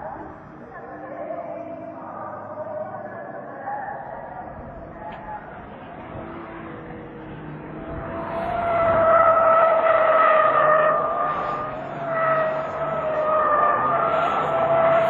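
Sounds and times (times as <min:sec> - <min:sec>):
car engine running: 0:04.2 - 0:15.0.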